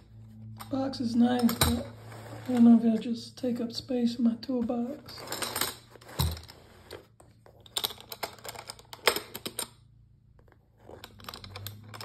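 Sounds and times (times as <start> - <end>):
metal latches clicking and rattling: 1.4 - 1.9, 7.6 - 9.8, 10.9 - 12.0.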